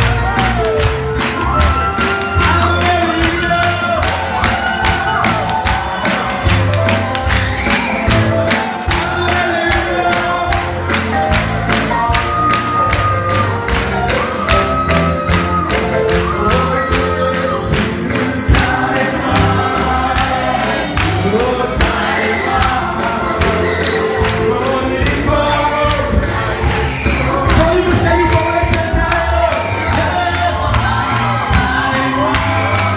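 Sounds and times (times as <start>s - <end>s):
band with bass and percussion: 0.0s - 32.9s
group of voices singing: 7.8s - 11.0s, 15.5s - 32.9s.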